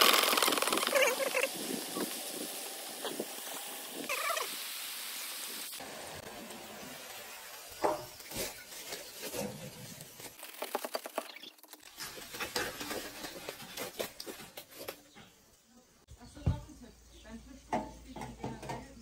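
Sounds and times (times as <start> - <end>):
wedges tumbling rattle: 0.0 - 1.2
food sizzling in fryer oil: 0.0 - 10.4.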